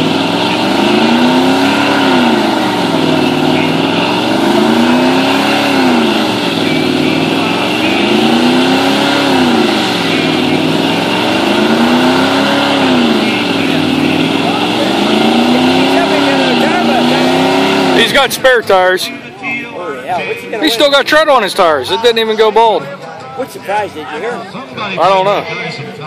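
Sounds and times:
spinning tyres squealing: 0:00.0 - 0:19.0
truck engine revving high: 0:00.0 - 0:22.9.

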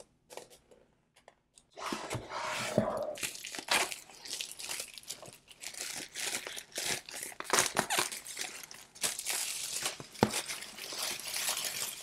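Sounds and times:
plastic wrap crinkling: 0:03.2 - 0:12.0.

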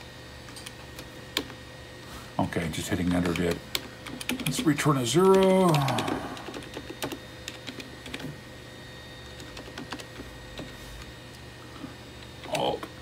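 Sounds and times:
steady low hum: 0:00.0 - 0:13.0
keyboard typing: 0:03.0 - 0:08.4, 0:09.2 - 0:10.8.

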